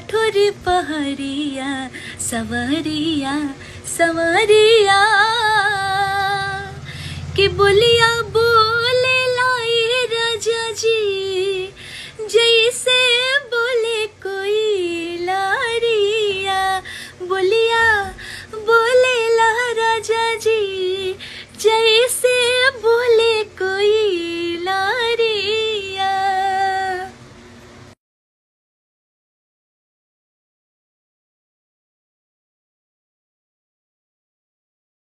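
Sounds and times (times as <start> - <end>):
woman singing solo: 0.0 - 27.1.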